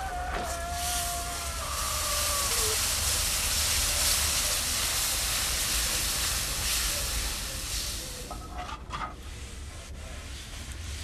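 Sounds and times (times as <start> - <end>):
loud hissing noise: 0.0 - 8.6.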